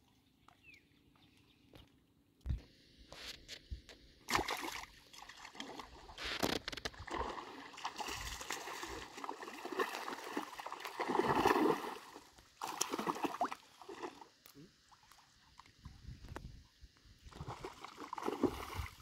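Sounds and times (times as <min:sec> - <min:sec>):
fish splashing in water: 0:07.0 - 0:14.2, 0:17.4 - 0:19.0.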